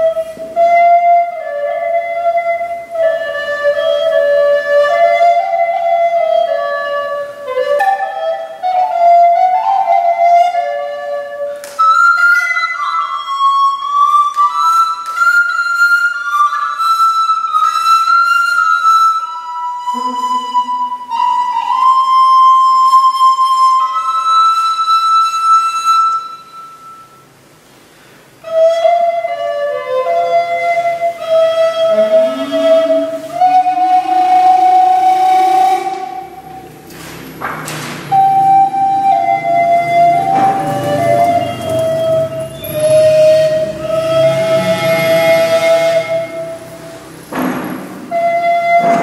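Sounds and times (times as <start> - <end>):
solo recorder playing: 0.0 - 27.3, 28.4 - 36.8, 38.1 - 46.9, 48.1 - 49.0.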